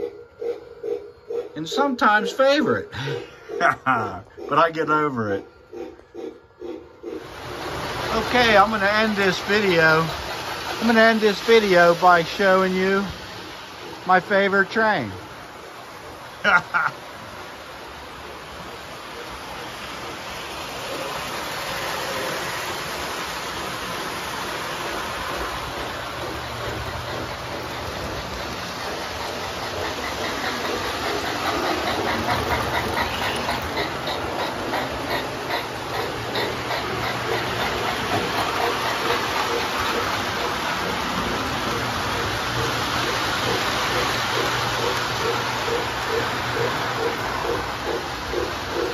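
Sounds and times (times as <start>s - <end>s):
model trains rumbling on track: 0.0s - 48.9s.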